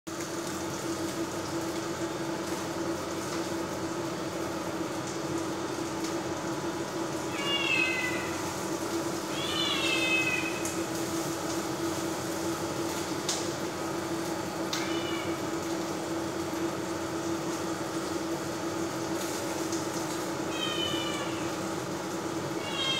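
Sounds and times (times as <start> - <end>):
cat meowing: 7.3 - 8.5, 9.3 - 10.7, 14.8 - 15.4, 20.5 - 21.6, 22.6 - 22.9.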